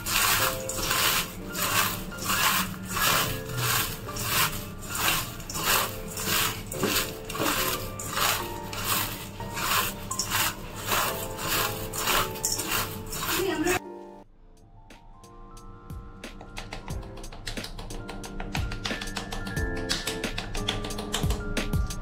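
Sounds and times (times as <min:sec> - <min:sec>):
rhythmic rubbing strokes: 0:00.0 - 0:13.8.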